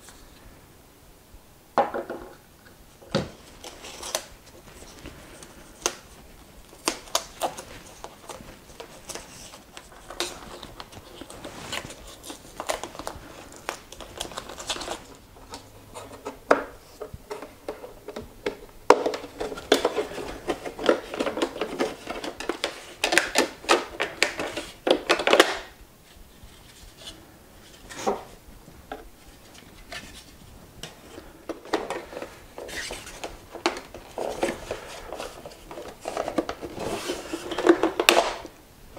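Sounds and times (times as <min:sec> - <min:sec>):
plastic scraping and rattling: 0:03.0 - 0:25.8, 0:28.9 - 0:38.6
plastic parts clicking and knocking: 0:12.6 - 0:25.7, 0:30.8 - 0:38.5.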